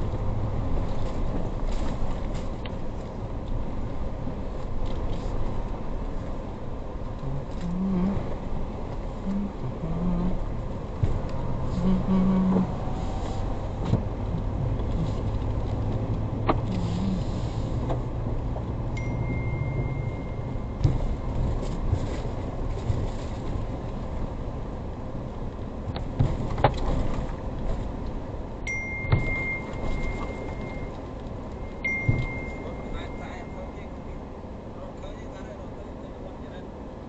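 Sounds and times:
engine and road rumble: 0.0s - 37.0s
thin high tone: 19.0s - 21.3s, 28.7s - 34.3s
knocks and rattles over bumps: 20.7s - 24.3s, 25.8s - 28.1s.

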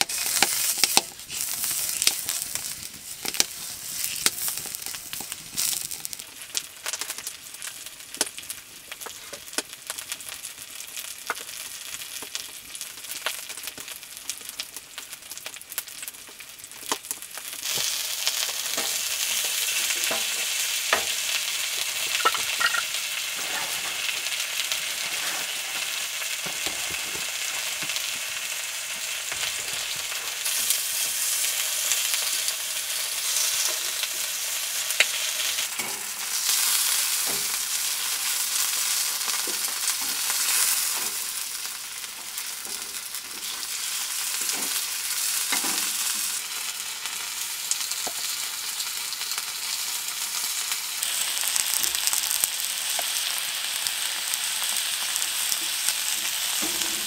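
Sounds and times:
clicks and scrapes of turning food: 0.0s - 6.2s
food sizzling in a pan: 0.0s - 57.0s.

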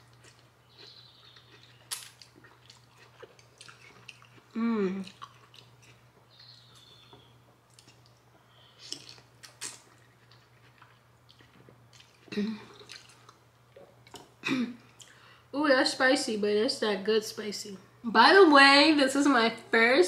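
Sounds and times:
quiet chewing: 0.0s - 15.3s.

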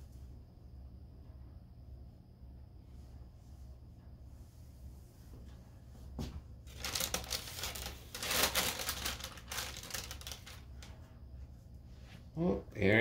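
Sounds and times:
parchment paper crinkling: 6.7s - 11.0s.

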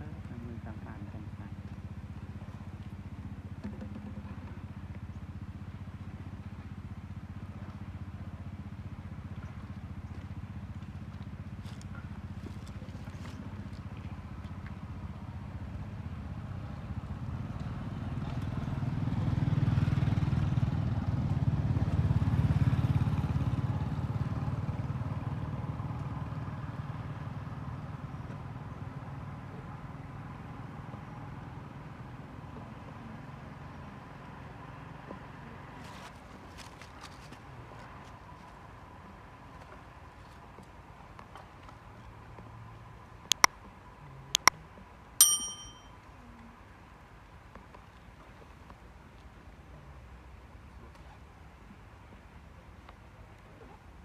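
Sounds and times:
vehicle engine rumble passing: 0.0s - 40.1s.

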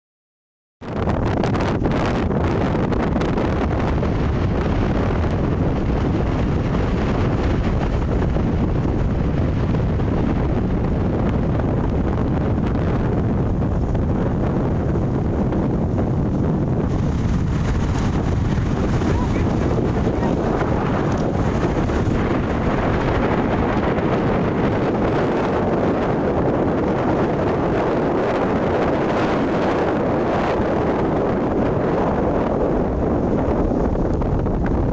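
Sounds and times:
wind buffeting microphone: 0.8s - 34.9s
sea surf breaking: 13.7s - 33.7s.

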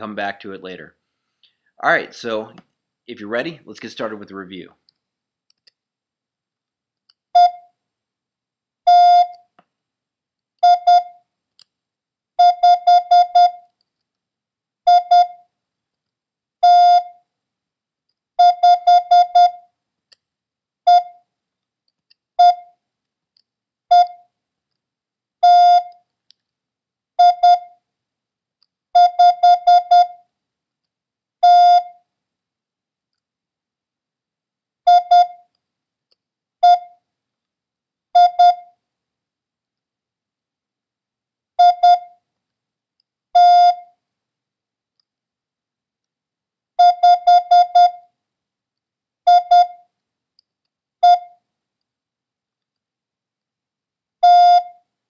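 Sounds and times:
morse code beeps: 8.9s - 9.4s, 10.6s - 11.2s, 12.4s - 13.6s, 14.9s - 15.4s, 16.6s - 17.1s, 18.4s - 19.6s, 20.9s - 21.2s, 22.4s - 22.7s, 23.9s - 24.2s, 25.4s - 25.9s, 27.2s - 27.7s, 29.0s - 30.2s, 31.4s - 32.0s, 34.9s - 35.4s, 38.2s - 38.7s, 41.6s - 42.1s, 43.4s - 43.9s, 46.8s - 48.0s, 49.3s - 49.8s, 54.2s - 54.8s.

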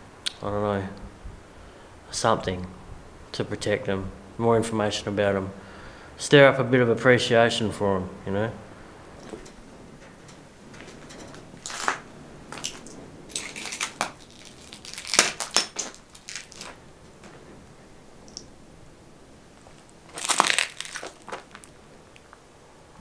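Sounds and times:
boots crunching on gritty floor: 9.2s - 17.5s, 19.6s - 21.8s.

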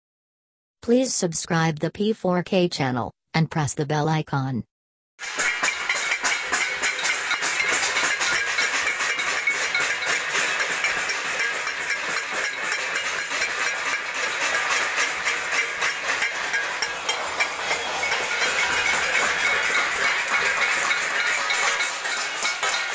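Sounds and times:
steel plates clanging: 5.2s - 22.9s.

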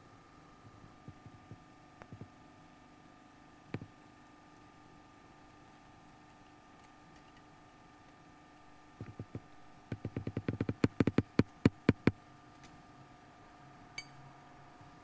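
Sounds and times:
rapid sharp knocks: 9.0s - 12.2s.

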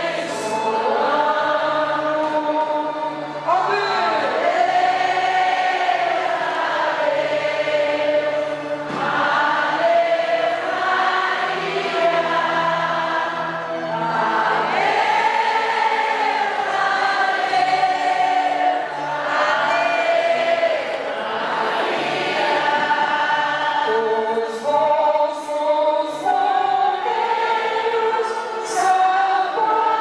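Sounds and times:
crowd singing a hymn: 0.0s - 30.0s.

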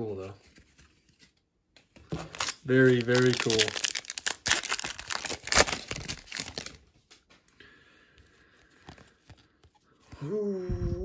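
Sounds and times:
foil card pack crinkling: 2.1s - 6.9s.

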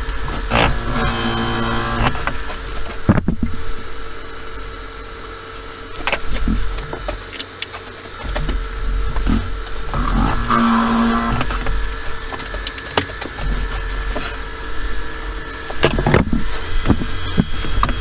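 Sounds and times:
turning tool cutting wood: 0.0s - 2.5s, 9.2s - 11.8s
wood lathe humming: 0.2s - 2.3s, 9.9s - 11.8s.

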